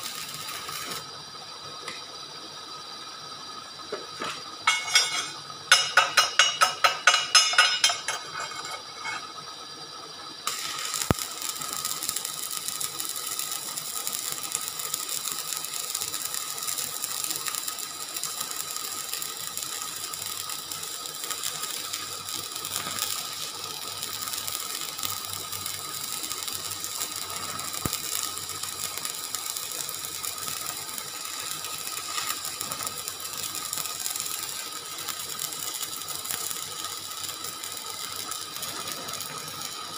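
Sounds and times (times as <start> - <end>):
welding arc crackling: 0.0 - 39.9.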